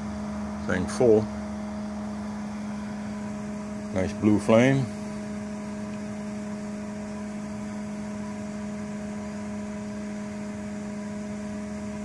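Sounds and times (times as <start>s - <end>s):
gas flame hissing: 0.0s - 9.0s
small computer fan humming: 0.0s - 12.0s.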